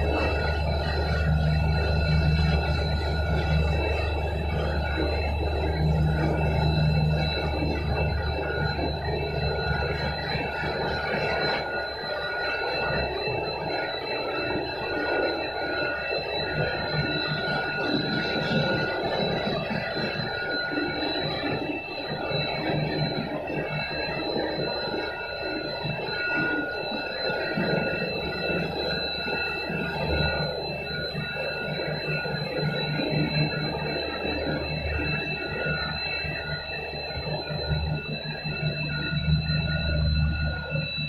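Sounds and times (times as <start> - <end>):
high-pitched machine whines: 0.0 - 41.0
machinery hum and rumble: 0.0 - 41.0.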